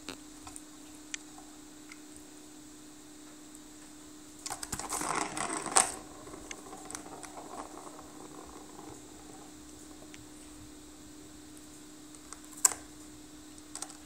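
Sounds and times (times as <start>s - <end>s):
plastic ball rattling in track: 4.4s - 10.8s.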